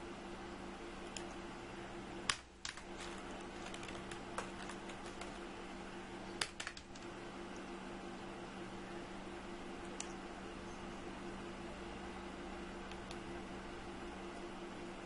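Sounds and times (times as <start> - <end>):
steady low hum: 0.0 - 15.0
keyboard keystrokes clicking: 2.3 - 5.4.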